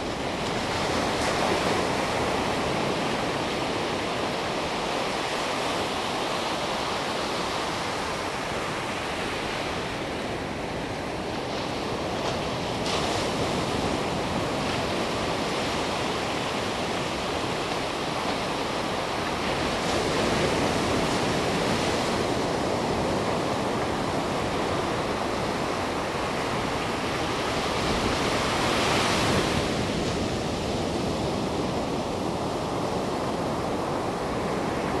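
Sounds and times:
small waves breaking on beach: 0.0s - 35.0s.

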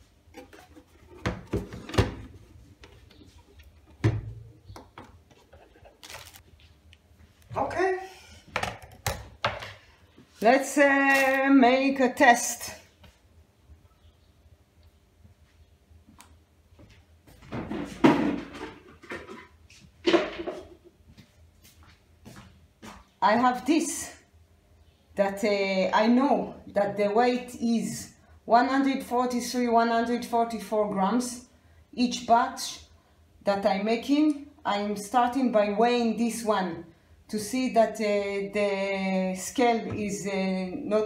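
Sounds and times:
knocks and rustling: 17.3s - 20.9s.

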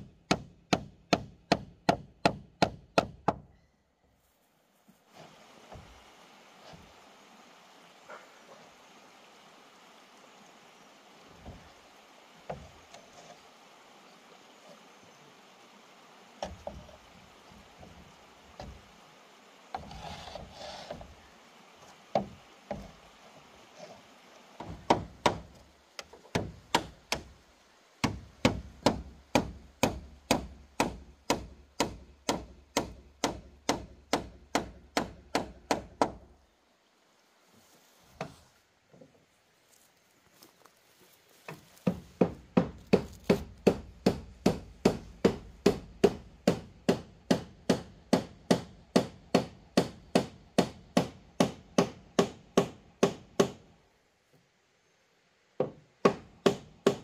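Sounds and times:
hand tool striking wood: 0.3s - 3.4s, 24.6s - 27.3s, 28.0s - 36.2s, 41.5s - 53.6s, 55.6s - 57.0s.

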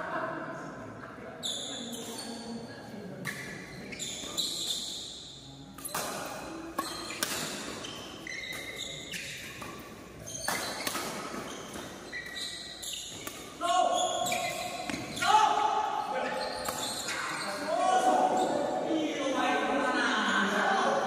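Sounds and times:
shoes squeaking on court: 1.4s - 15.4s, 16.0s - 18.9s
rackets hitting shuttlecock: 5.8s - 13.6s, 14.2s - 15.2s, 16.5s - 17.3s.

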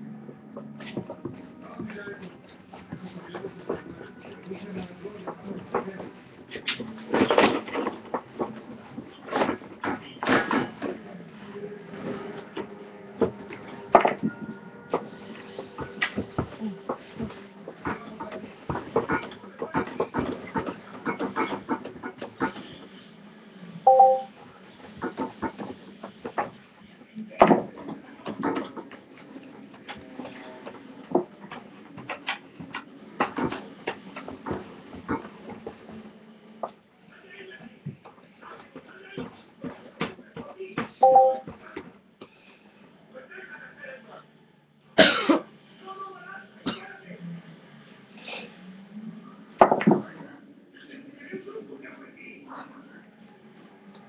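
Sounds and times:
girl coughing and gagging: 45.0s - 45.4s.

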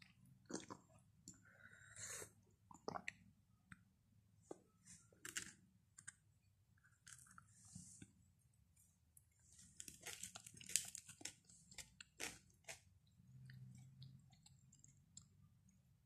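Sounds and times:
crunchy chewing: 9.3s - 15.4s
flatbread being torn: 9.7s - 12.9s.

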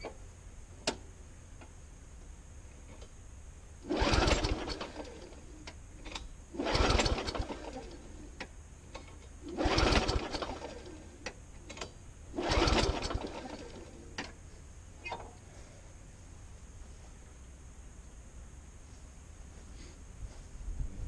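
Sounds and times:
lawnmower engine failing to start: 3.8s - 8.2s, 8.9s - 14.4s.

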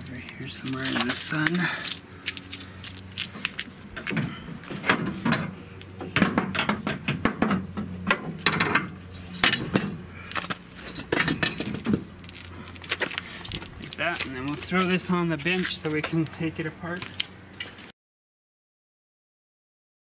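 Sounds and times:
metallic clanks and scrapes: 4.0s - 12.1s.

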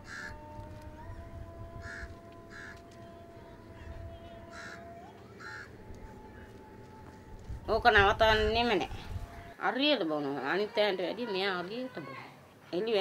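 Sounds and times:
crows cawing: 0.0s - 0.4s, 1.8s - 2.9s, 3.8s - 6.0s.

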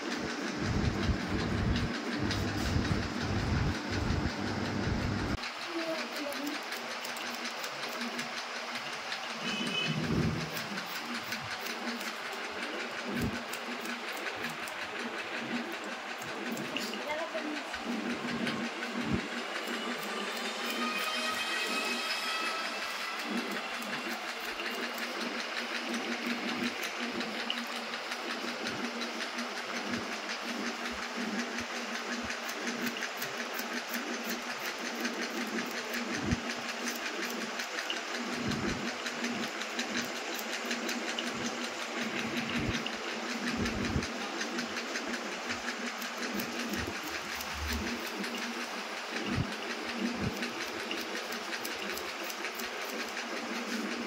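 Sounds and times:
steady low hum: 0.0s - 5.9s, 22.8s - 54.0s.

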